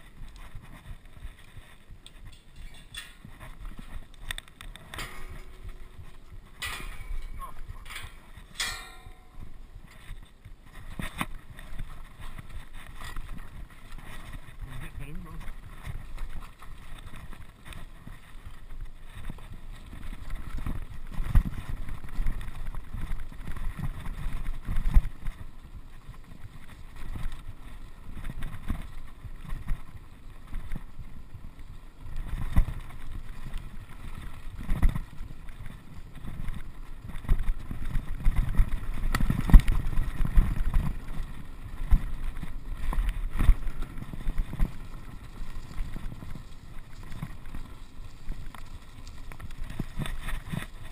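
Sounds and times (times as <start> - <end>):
bike knocking and rattling: 0.0 - 50.9
bike tyres rumbling on stony track: 0.0 - 50.9
wind on microphone: 0.0 - 50.9.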